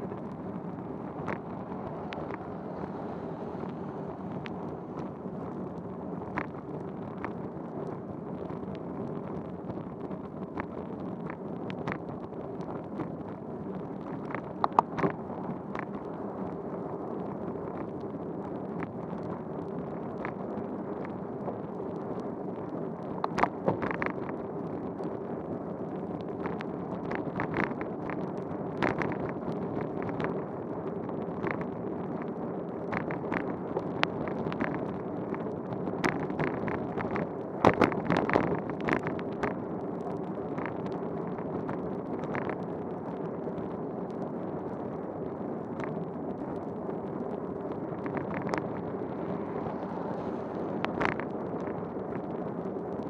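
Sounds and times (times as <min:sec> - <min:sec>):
wind on microphone: 0:00.0 - 0:53.0
bicycle tyres hissing on wet road: 0:01.7 - 0:04.4, 0:49.1 - 0:50.9.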